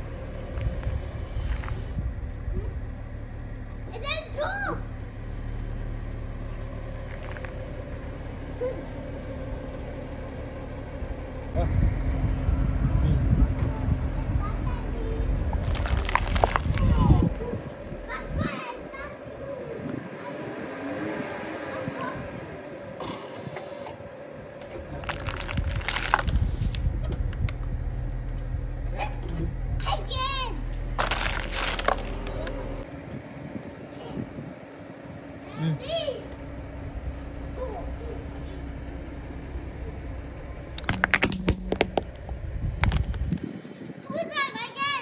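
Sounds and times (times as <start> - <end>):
car engine low rumble: 0.0 - 45.0
plastic toy cracking under tyre: 15.6 - 17.4, 25.0 - 26.5, 31.0 - 32.6, 40.8 - 42.1, 42.8 - 43.5.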